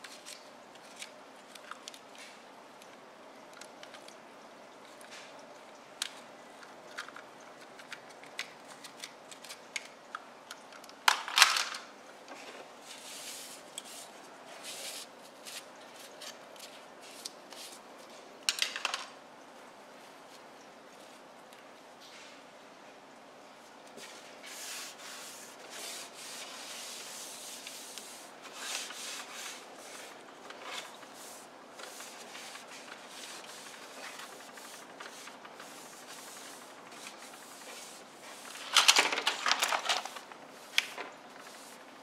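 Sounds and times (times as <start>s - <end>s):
plastic toys clattering in basket: 11.1s - 11.9s, 38.6s - 40.3s
cloth wiping wooden surface: 24.0s - 30.1s, 31.1s - 38.5s.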